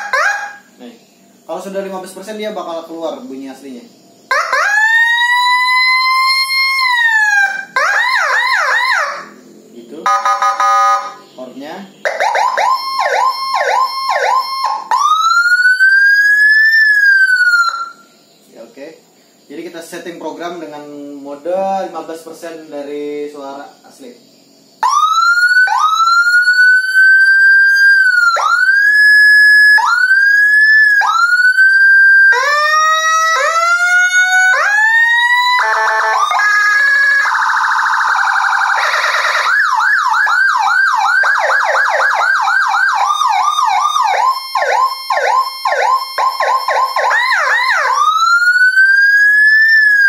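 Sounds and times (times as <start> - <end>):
electronic siren cycling tones: 0.0 - 0.8, 4.2 - 11.4, 12.0 - 18.4, 24.8 - 50.0.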